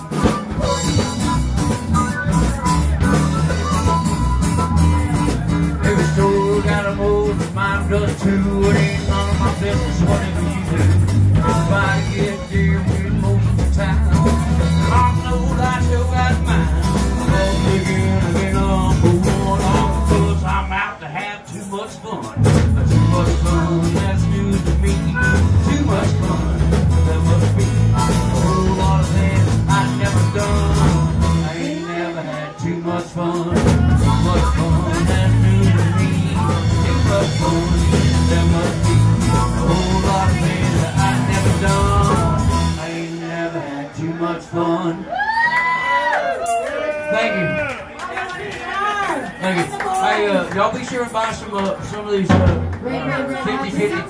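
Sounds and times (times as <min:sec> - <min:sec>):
harmonica: 0:00.0 - 0:07.0
electric bass: 0:00.0 - 0:21.0, 0:21.8 - 0:43.6
acoustic guitar: 0:00.0 - 0:45.1.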